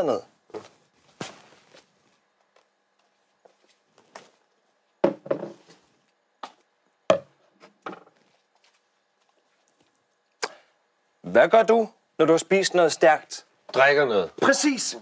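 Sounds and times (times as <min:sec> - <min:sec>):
knocks on wooden desk: 0:05.0 - 0:05.6, 0:07.1 - 0:08.1.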